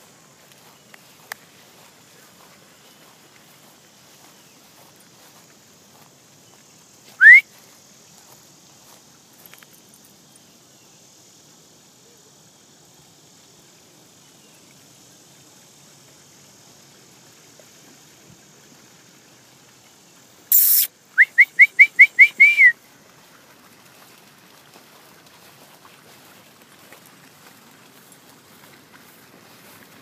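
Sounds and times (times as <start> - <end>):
steady high hiss: 0.0 - 23.5
person whistling rising pitch: 7.2 - 7.5, 20.5 - 22.7.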